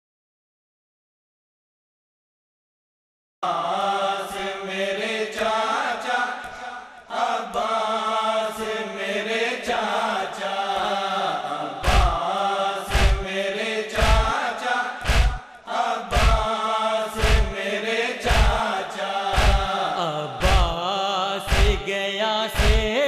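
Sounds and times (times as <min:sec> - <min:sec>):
men chanting in unison: 0:03.4 - 0:23.0
chest-beating thuds: 0:11.8 - 0:12.2, 0:12.9 - 0:13.3, 0:15.0 - 0:15.5, 0:16.1 - 0:16.5, 0:19.4 - 0:19.7, 0:21.5 - 0:21.8, 0:22.6 - 0:22.9.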